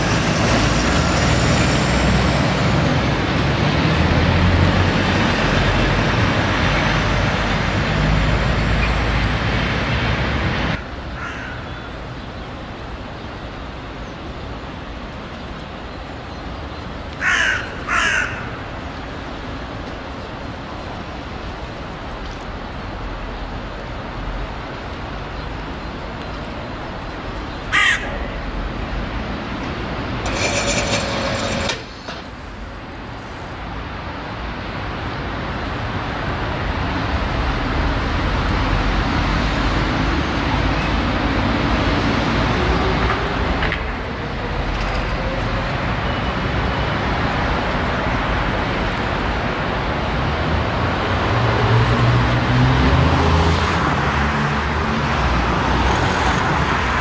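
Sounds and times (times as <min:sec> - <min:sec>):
diesel engines rumbling: 0:00.0 - 0:57.0
crow cawing: 0:11.2 - 0:11.9, 0:17.2 - 0:18.7, 0:27.7 - 0:28.4.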